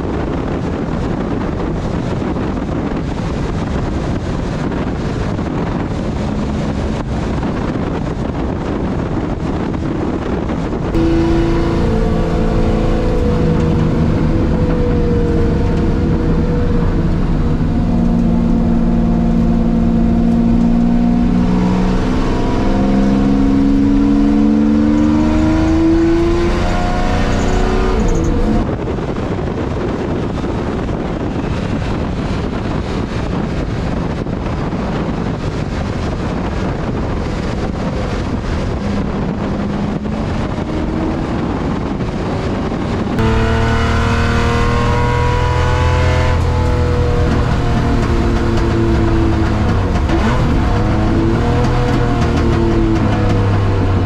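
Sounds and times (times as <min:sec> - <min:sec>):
wind rushing over camera: 0:00.0 - 0:54.0
racing car engine revving: 0:04.6 - 0:29.4, 0:35.0 - 0:54.0.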